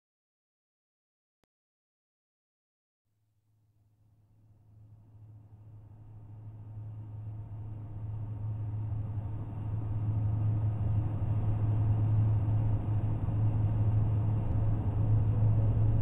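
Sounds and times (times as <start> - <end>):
low rumbling drone: 4.3 - 16.0.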